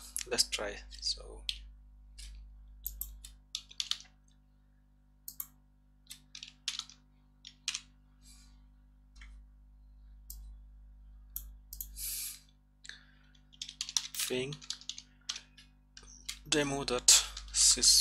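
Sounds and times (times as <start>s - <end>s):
faint low hum: 0.0s - 18.0s
computer mouse clicks: 1.4s - 4.1s, 5.3s - 7.9s, 11.4s - 12.0s
keyboard keys clicking: 2.8s - 4.2s, 6.1s - 7.9s, 13.5s - 15.7s.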